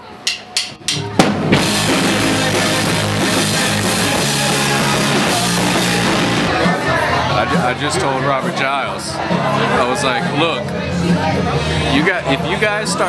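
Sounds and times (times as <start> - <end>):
punk rock band playing live: 0.8 - 7.8.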